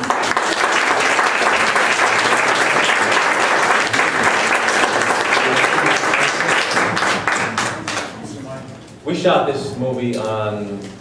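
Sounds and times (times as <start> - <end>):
audience applauding: 0.0 - 8.2.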